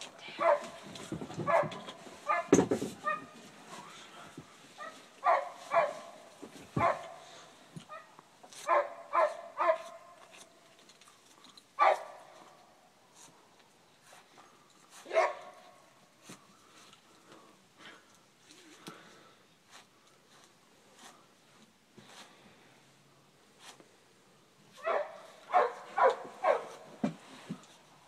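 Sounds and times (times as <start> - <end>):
dog barking: 0.4 - 0.8, 1.4 - 3.4, 4.8 - 6.2, 6.8 - 7.2, 7.9 - 10.1, 11.8 - 12.3, 15.0 - 15.7, 24.8 - 26.8.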